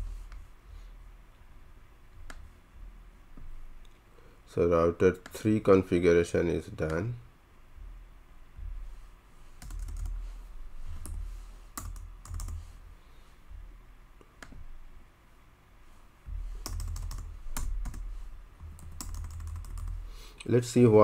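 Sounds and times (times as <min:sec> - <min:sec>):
computer keyboard typing: 0:09.6 - 0:10.2, 0:11.0 - 0:12.7, 0:16.6 - 0:20.0.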